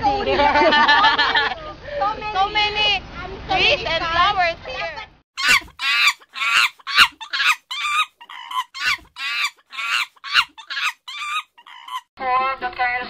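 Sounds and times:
chicken squawking: 5.4s - 12.1s.

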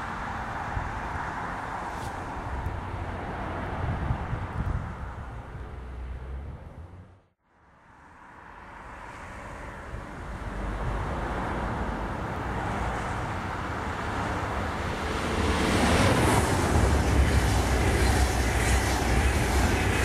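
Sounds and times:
train wheels rumbling on rails: 10.4s - 20.0s.

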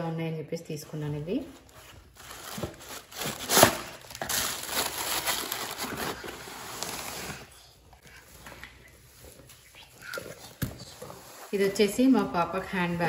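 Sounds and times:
tissue paper crinkling: 1.7s - 7.5s.

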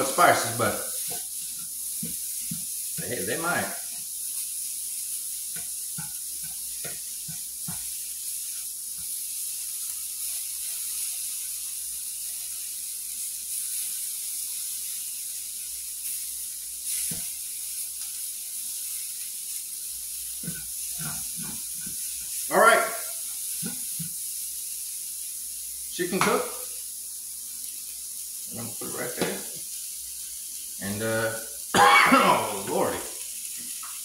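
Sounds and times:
chicken sizzling in a frying pan: 0.0s - 34.0s
spatula tapping and scraping: 1.0s - 3.1s, 5.5s - 9.2s, 20.4s - 22.4s.

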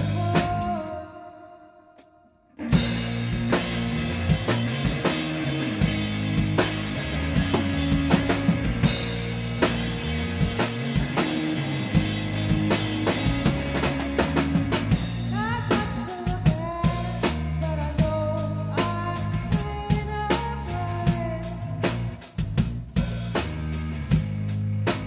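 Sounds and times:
drum kit with cymbals: 0.0s - 0.8s, 2.6s - 25.0s
woman singing: 0.0s - 2.0s, 15.3s - 21.8s
electric guitars: 2.6s - 25.0s.

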